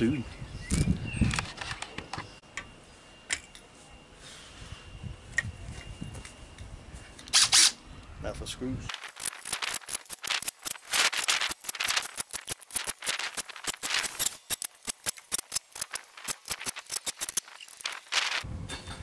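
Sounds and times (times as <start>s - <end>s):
screwing clicks and rattles: 8.9s - 18.4s.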